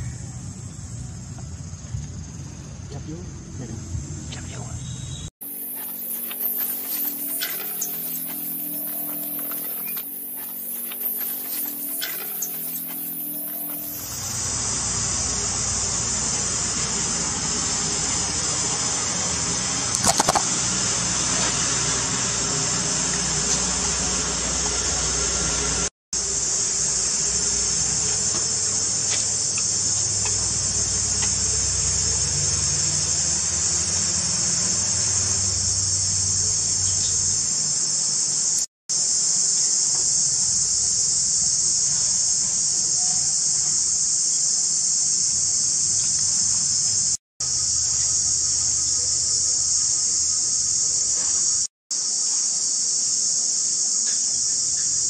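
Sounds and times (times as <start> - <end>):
high-pitched insect chorus: 0.0 - 55.0.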